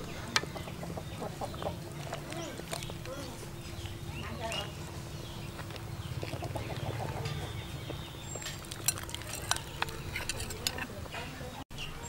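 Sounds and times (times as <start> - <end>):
steady low rumble: 0.0 - 11.1
chickens clucking: 0.0 - 11.5
ladle clinking on pot and bowl: 8.4 - 11.0.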